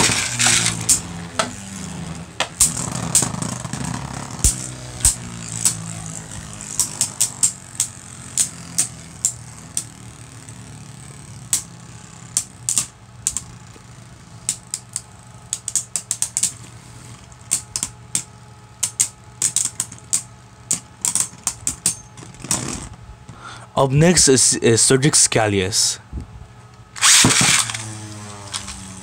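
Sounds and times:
spinning tops clacking: 0:00.0 - 0:01.7
tops spinning in plastic stadium: 0:00.0 - 0:20.2.

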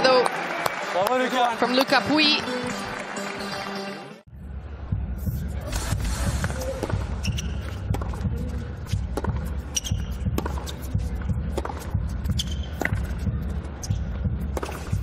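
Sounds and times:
racket striking tennis ball: 0:06.0 - 0:08.3, 0:08.9 - 0:15.0
ball bouncing: 0:06.4 - 0:15.0
shoe squeaks: 0:06.5 - 0:07.9, 0:09.5 - 0:11.0, 0:12.2 - 0:13.1.

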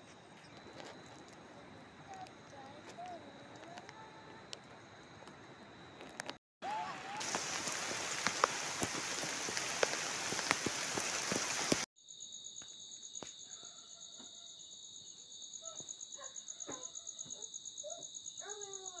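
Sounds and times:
heavy rain on foliage: 0:06.2 - 0:11.9
high-pitched insect trill: 0:07.2 - 0:19.0.

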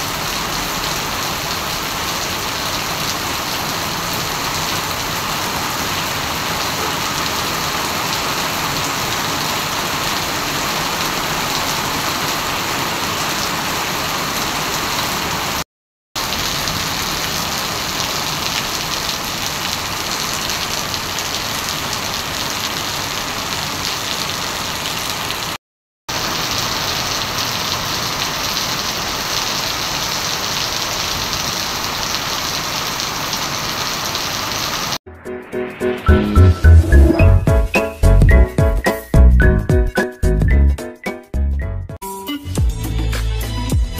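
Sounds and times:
heavy rain on pavement: 0:00.0 - 0:15.6, 0:16.2 - 0:35.0.

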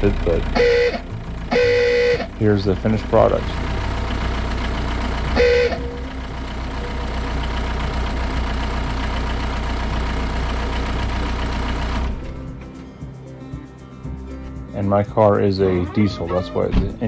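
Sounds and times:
diesel engine idling: 0:00.0 - 0:13.4
ooga horn blast: 0:00.6 - 0:02.3, 0:05.4 - 0:06.0.

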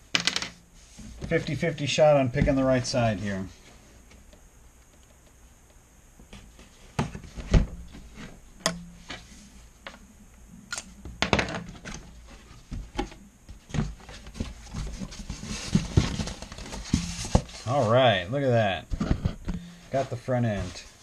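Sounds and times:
cardboard box knocks and thumps: 0:13.7 - 0:17.6.

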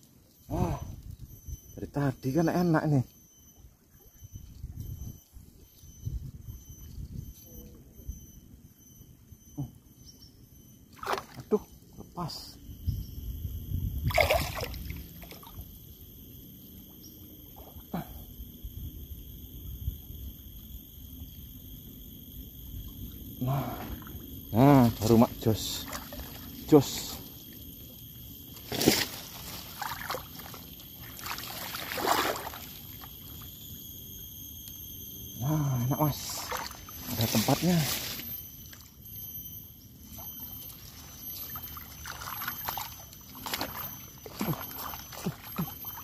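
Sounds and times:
water sloshing around wading person: 0:10.9 - 0:11.6, 0:14.0 - 0:15.7, 0:24.8 - 0:27.6, 0:28.5 - 0:33.4, 0:36.2 - 0:38.9, 0:40.1 - 0:46.0
water splash: 0:11.0 - 0:11.4, 0:14.1 - 0:15.5, 0:29.7 - 0:32.7.

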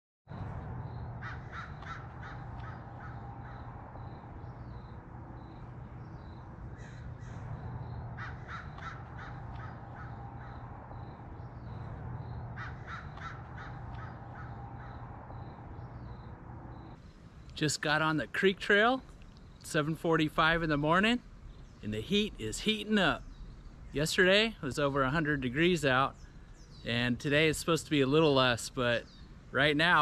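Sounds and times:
steady low hum: 0:00.3 - 0:29.8
crows cawing: 0:00.8 - 0:16.9.

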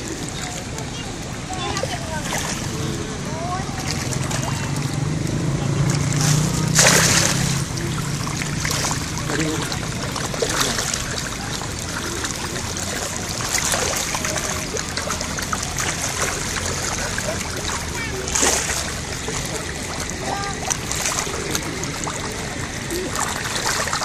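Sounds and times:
fish splashing at water surface: 0:00.0 - 0:24.0.

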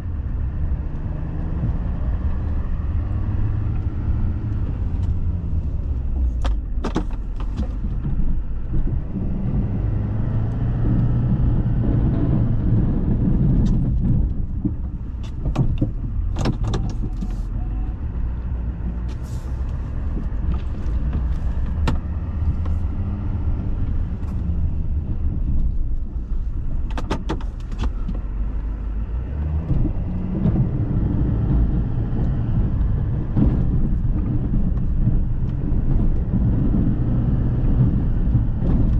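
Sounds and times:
pickup truck engine rumble: 0:00.0 - 0:38.9
sharp clicks and knocks: 0:05.8 - 0:09.2, 0:13.2 - 0:17.6, 0:18.2 - 0:28.6.

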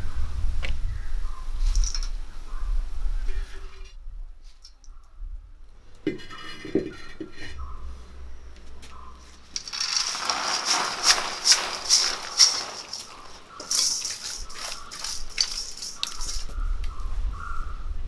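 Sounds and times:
metal utensils clinking in a pan: 0:09.6 - 0:16.5
rapid clicks and rattling: 0:09.6 - 0:16.5.

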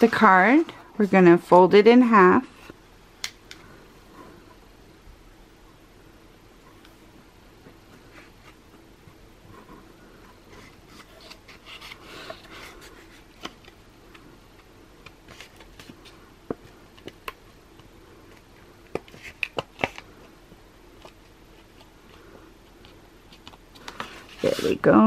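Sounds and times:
paper rustling and scraping: 0:10.4 - 0:13.8, 0:23.3 - 0:25.0.

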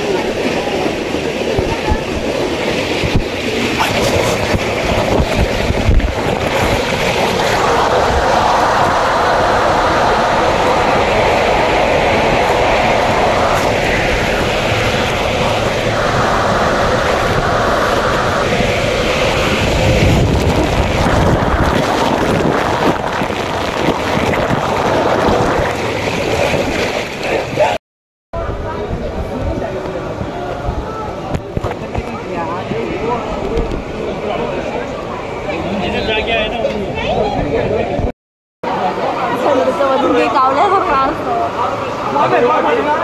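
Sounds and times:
water rushing in slide tube: 0:00.0 - 0:27.8
wind buffeting microphone: 0:00.0 - 0:27.8, 0:28.4 - 0:38.1.

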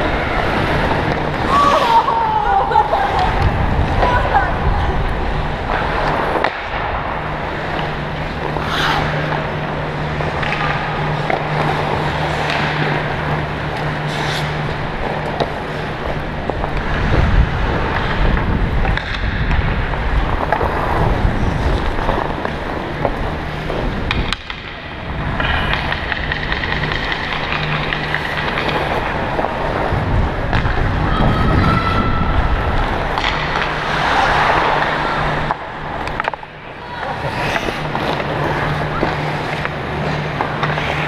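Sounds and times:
skates scraping on ice: 0:00.0 - 0:41.0
steady low hum: 0:00.0 - 0:41.0
wind rushing over microphone: 0:02.6 - 0:06.0, 0:16.0 - 0:24.3, 0:29.0 - 0:33.2.

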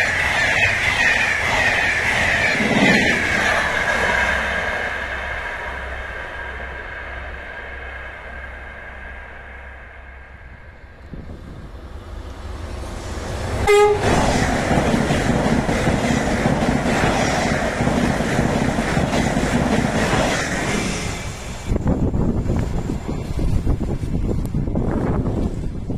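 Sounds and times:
train passing at speed: 0:00.0 - 0:25.9
train horn toot: 0:13.6 - 0:14.2.

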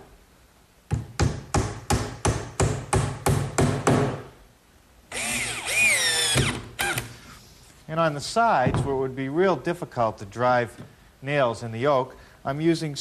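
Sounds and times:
hammer striking nails: 0:00.9 - 0:04.3.

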